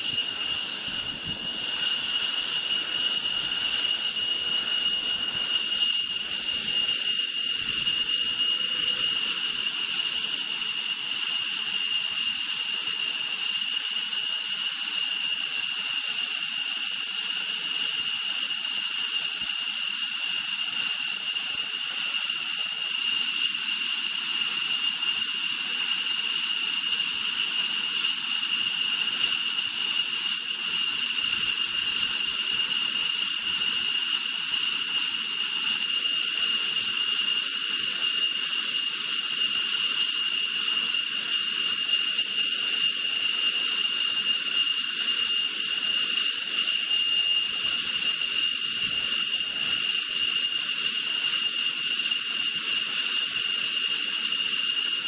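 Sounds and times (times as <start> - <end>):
jet engines idling whine: 0.0 - 55.0.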